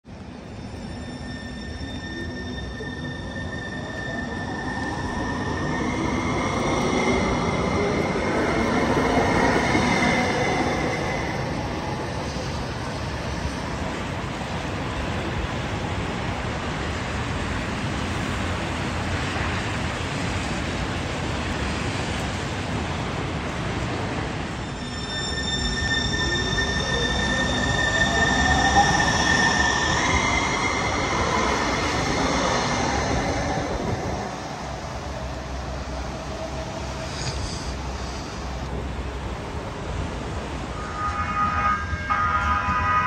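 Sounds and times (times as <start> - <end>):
train rolling noise: 0.1 - 43.0
high whistling tones: 24.6 - 33.0.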